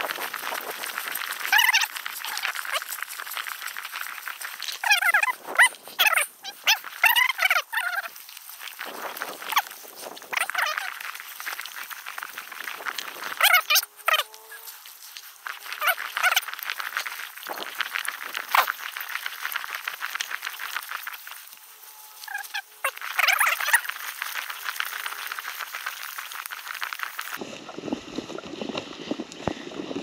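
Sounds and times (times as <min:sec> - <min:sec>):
frogs clicking and rattling: 0:00.0 - 0:21.6, 0:22.2 - 0:27.4
low rumbling noise: 0:27.4 - 0:30.0.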